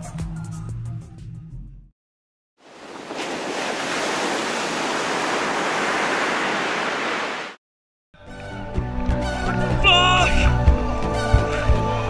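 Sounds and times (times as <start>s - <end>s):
background music: 8.2s - 12.0s.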